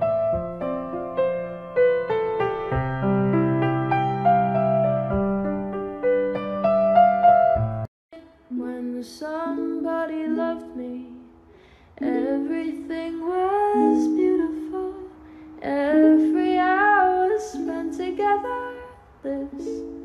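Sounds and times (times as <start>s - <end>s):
plucked-string accompaniment: 0.0s - 11.4s
person singing: 8.1s - 11.4s, 12.0s - 20.0s.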